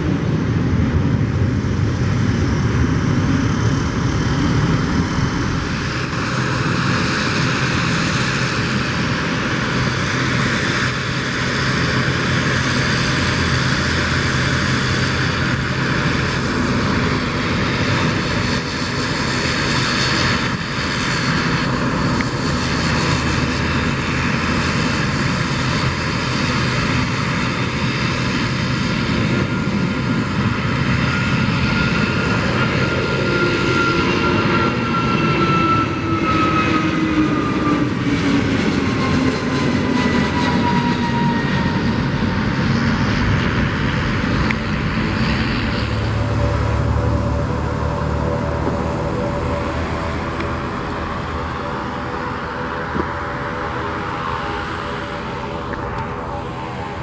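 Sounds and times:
jet engines rushing: 0:00.0 - 0:57.0
engine whine sliding down: 0:31.8 - 0:57.0.

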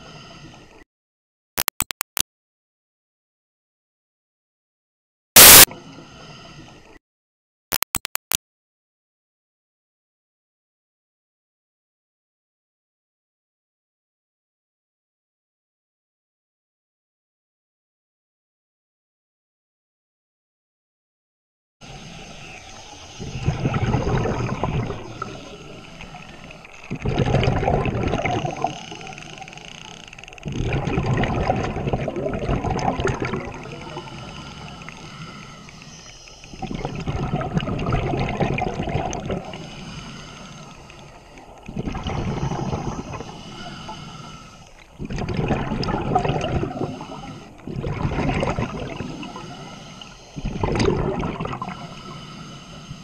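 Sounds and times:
scuba regulator bubbling exhale: 0:23.2 - 0:29.5, 0:30.4 - 0:40.7, 0:41.7 - 0:53.0.

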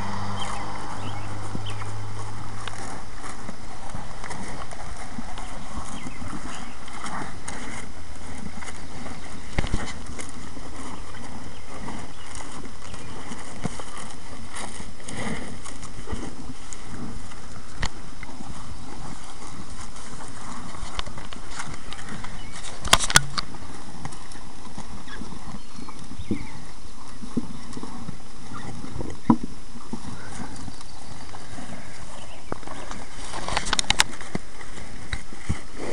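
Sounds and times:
steady hiss: 0:00.0 - 0:35.9
steer chewing feed: 0:00.0 - 0:35.9.

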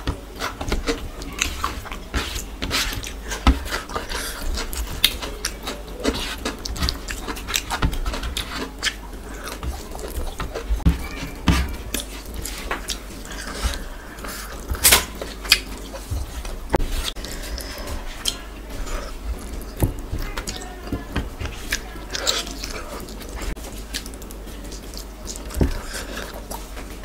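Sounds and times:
fingers squishing food: 0:00.0 - 0:27.0
wet chewing and mouth smacks: 0:01.8 - 0:10.9, 0:11.9 - 0:16.0.

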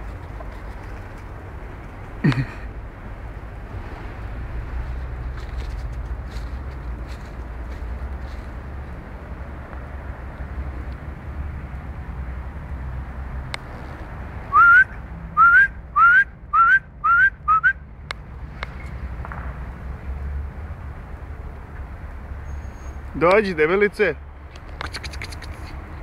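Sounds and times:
person whistling rising notes: 0:14.5 - 0:17.8.

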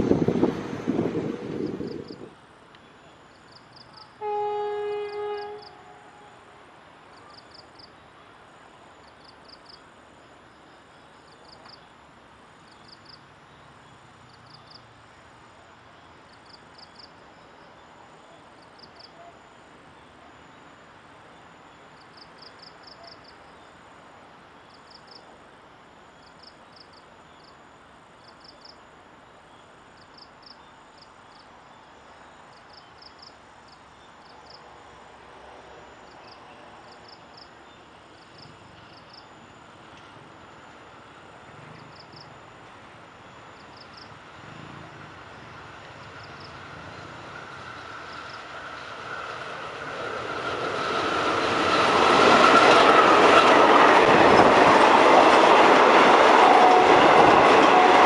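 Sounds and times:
insect chirping: 0:05.1 - 0:35.1, 0:35.8 - 0:39.8, 0:40.4 - 0:44.2.

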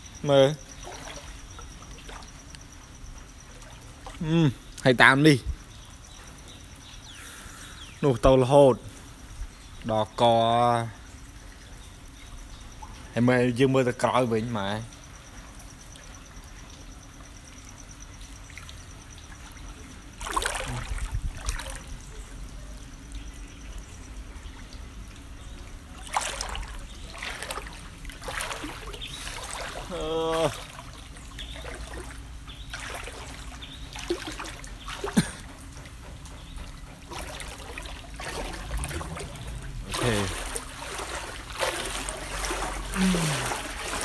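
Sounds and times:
insects chirping: 0:00.0 - 0:44.0
water sloshing as someone wades: 0:00.1 - 0:04.3, 0:13.9 - 0:44.0
floodwater splashing: 0:00.6 - 0:02.5, 0:18.4 - 0:22.7, 0:24.3 - 0:44.0.

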